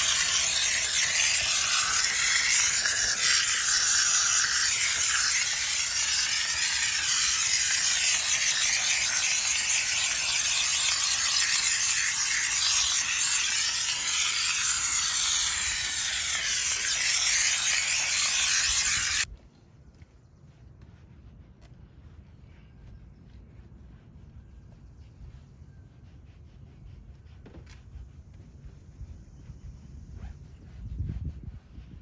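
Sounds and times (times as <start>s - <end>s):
steam cleaner hissing: 0.0s - 19.3s.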